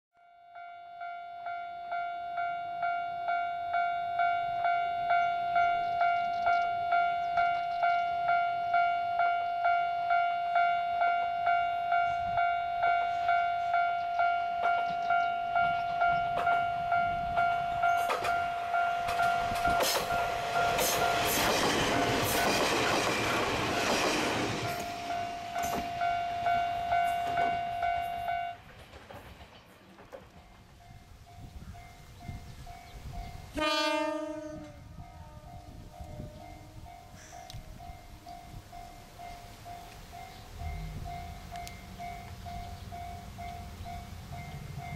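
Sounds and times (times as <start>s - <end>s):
level-crossing warning bell: 0.2s - 28.8s, 30.4s - 44.9s
diesel train engine passing: 4.1s - 34.2s, 34.9s - 44.9s
wheels clicking over rail joints: 13.1s - 31.1s.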